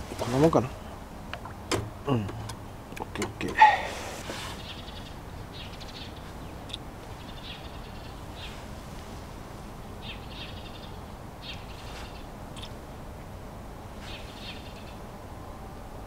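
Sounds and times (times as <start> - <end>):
low wind rumble: 0.0 - 16.0
buzzy bird calls: 3.6 - 8.8, 9.8 - 12.8, 13.9 - 15.1.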